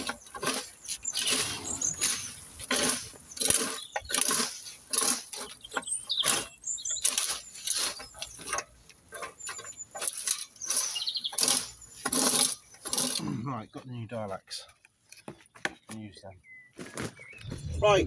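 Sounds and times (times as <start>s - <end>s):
rake scraping leaf litter: 0.0s - 13.3s.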